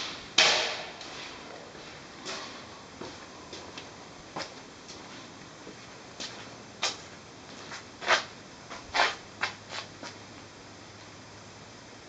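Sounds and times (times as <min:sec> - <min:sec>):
faint steady hiss: 0:00.0 - 0:12.0
scuffing footsteps on concrete: 0:03.0 - 0:10.2.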